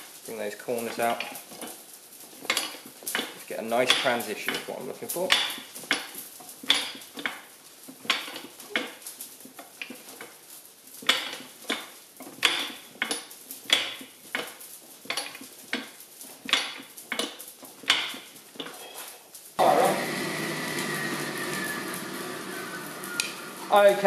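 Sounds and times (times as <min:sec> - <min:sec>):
fly press clanking on hot steel: 0:02.4 - 0:09.1, 0:11.0 - 0:18.9.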